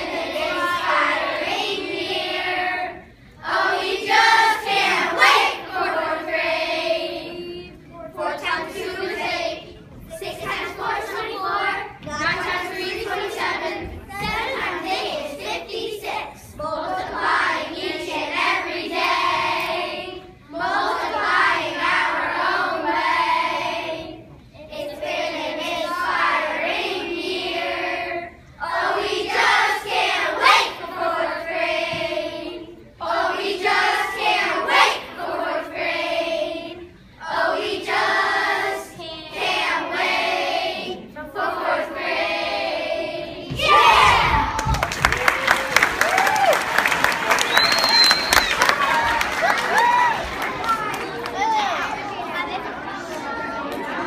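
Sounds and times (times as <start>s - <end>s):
children singing together: 0.0s - 44.6s
applause: 44.5s - 51.6s.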